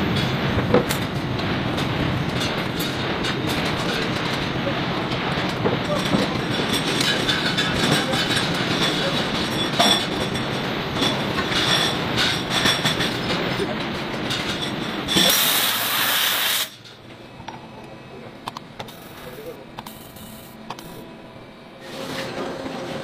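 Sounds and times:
factory machinery clattering: 0:00.0 - 0:23.0
loud hiss: 0:15.2 - 0:16.8.

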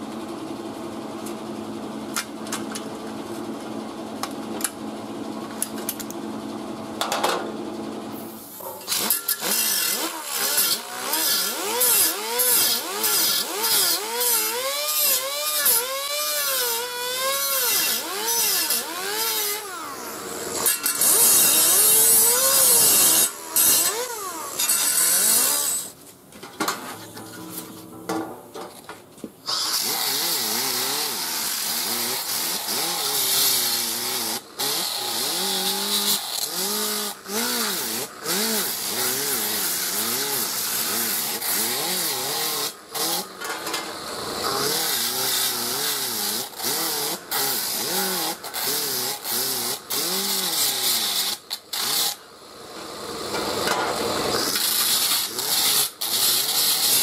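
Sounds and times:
sander grinding metal: 0:08.7 - 0:26.0, 0:29.4 - 0:52.2, 0:52.8 - 0:57.0.

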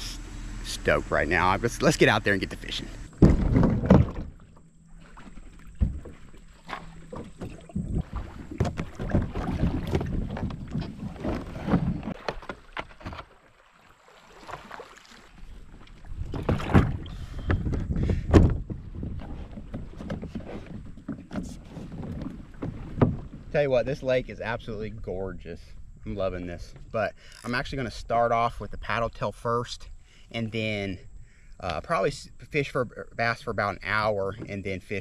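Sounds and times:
kayak hull scraping over gravel: 0:00.1 - 0:24.6
kayak knocks and clunks: 0:01.3 - 0:24.2, 0:33.6 - 0:35.0.

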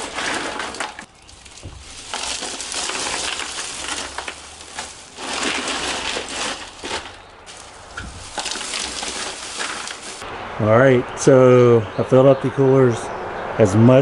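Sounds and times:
ice cubes clattering in cooler: 0:00.0 - 0:10.2
plastic bag crinkling: 0:00.0 - 0:10.2.

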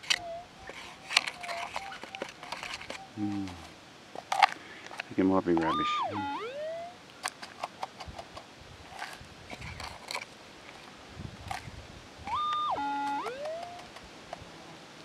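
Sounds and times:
metal detector tone: 0:00.0 - 0:03.6, 0:05.6 - 0:07.0, 0:12.3 - 0:13.9
soil and stones rattling: 0:00.0 - 0:05.8, 0:07.2 - 0:11.7.

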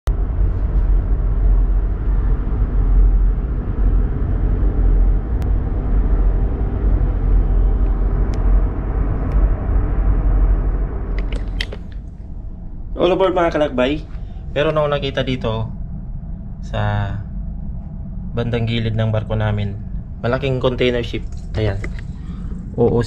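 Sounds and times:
ship engines rumbling: 0:00.1 - 0:23.0.

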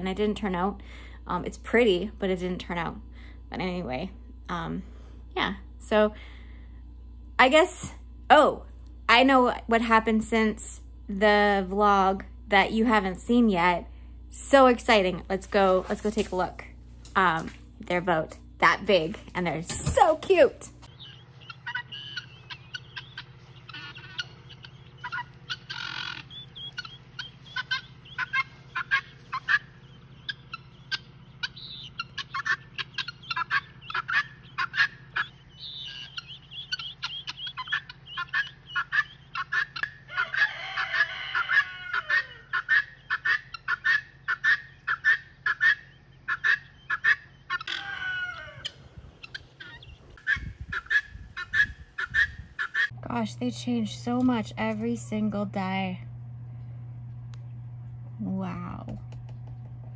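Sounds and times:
hen calling: 0:19.8 - 0:53.0
chicks peeping: 0:20.8 - 0:53.0.

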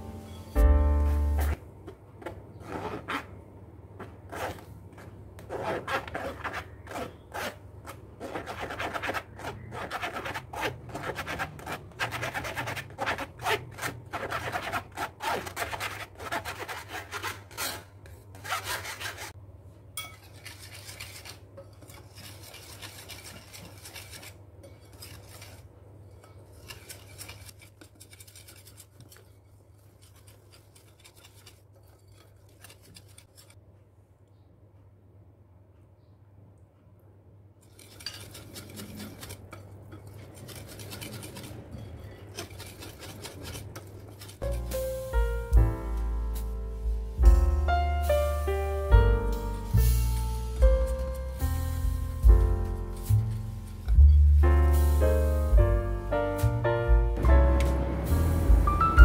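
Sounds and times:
spatula rasping flour through sieve: 0:02.6 - 0:03.4, 0:04.0 - 0:19.4, 0:20.0 - 0:33.6, 0:37.6 - 0:45.6, 0:48.1 - 0:56.6.

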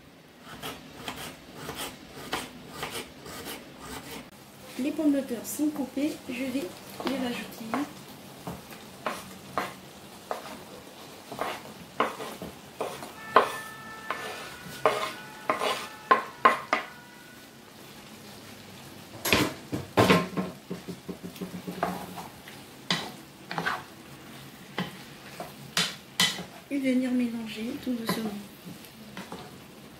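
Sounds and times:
sauce sizzling: 0:00.0 - 0:29.9
spatula scraping cutting board: 0:00.5 - 0:04.2, 0:11.3 - 0:16.9, 0:23.5 - 0:23.9.

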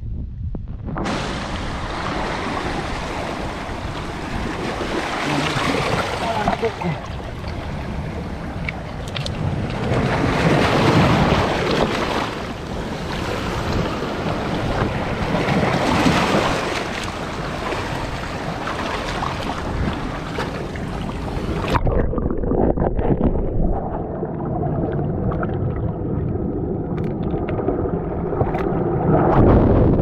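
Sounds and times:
dull underwater rush: 0:00.0 - 0:30.0
sea water splashing over rocks: 0:01.0 - 0:30.0
underwater knocks and clicks: 0:05.9 - 0:07.7, 0:08.5 - 0:10.0, 0:21.6 - 0:24.1, 0:24.9 - 0:29.5.

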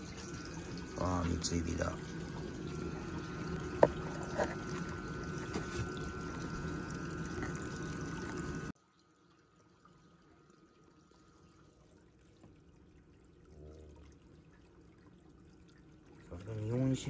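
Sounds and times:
trickle of running water: 0:00.0 - 0:17.0.

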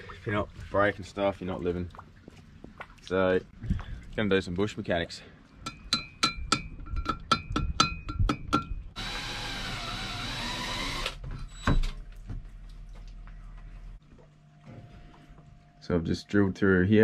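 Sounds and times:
power drill drilling metal: 0:09.0 - 0:11.7.

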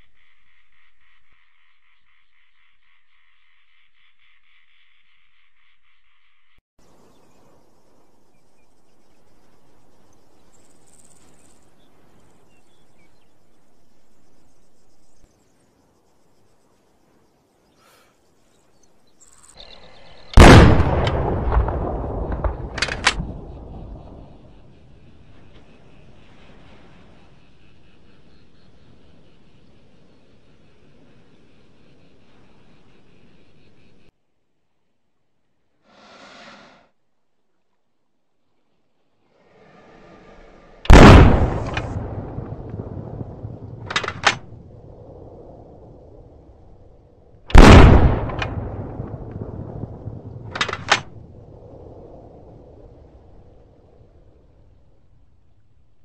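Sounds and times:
gunshot with rolling echo: 0:20.4 - 0:24.6, 0:40.9 - 0:44.7, 0:47.5 - 0:51.2
sharp clicks: 0:22.4 - 0:23.3, 0:43.9 - 0:44.4, 0:50.5 - 0:51.1.

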